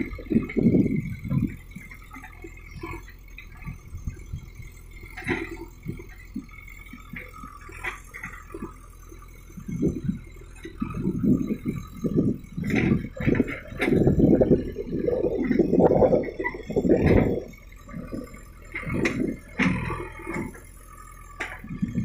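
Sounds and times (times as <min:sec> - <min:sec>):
diesel engine running: 0:00.0 - 0:22.0
low rumbling surges: 0:09.6 - 0:19.6.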